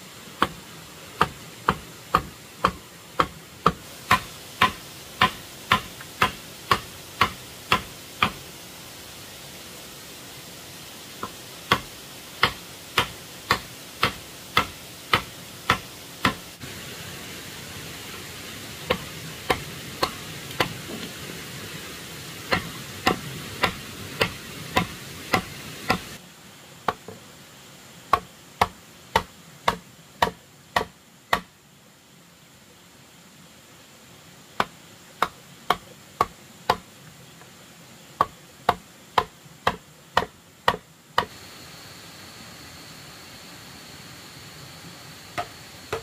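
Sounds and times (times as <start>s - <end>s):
background hiss: 0.0s - 46.0s
hand tool strikes: 1.2s - 8.4s, 11.2s - 16.4s, 18.9s - 21.1s, 22.5s - 26.2s, 28.1s - 31.5s, 38.2s - 41.4s, 45.4s - 46.0s.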